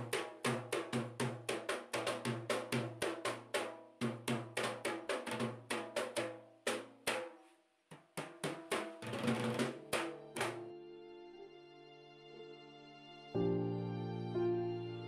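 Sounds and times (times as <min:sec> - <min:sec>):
drums beaten in fast rhythm: 0:00.0 - 0:07.3, 0:07.9 - 0:10.6.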